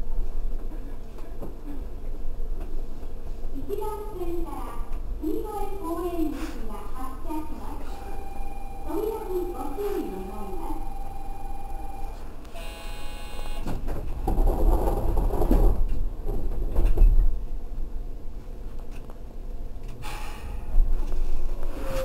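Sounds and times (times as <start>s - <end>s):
electronic signal tone: 7.9s - 13.7s.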